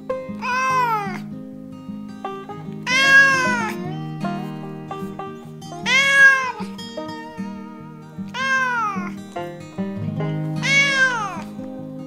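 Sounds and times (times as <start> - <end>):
background music: 0.0 - 12.0
kitten meowing: 0.4 - 1.2, 2.9 - 3.8, 5.9 - 6.6, 8.4 - 9.1, 10.6 - 11.4.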